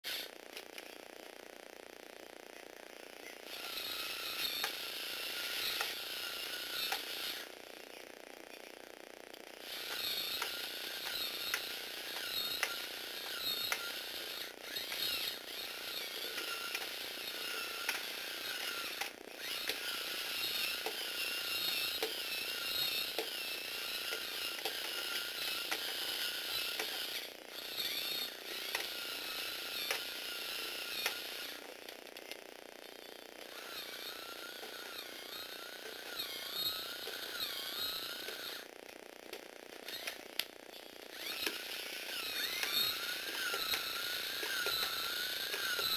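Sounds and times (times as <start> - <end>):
motor and gears whining: 0.0 - 45.9
robot legs clicking: 9.7 - 31.5, 41.1 - 45.9.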